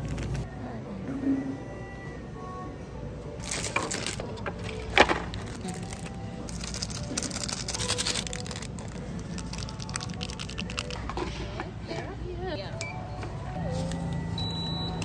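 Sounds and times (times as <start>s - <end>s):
plastic sachets crinkling: 3.4s - 11.1s
sachet tearing open: 3.4s - 11.1s.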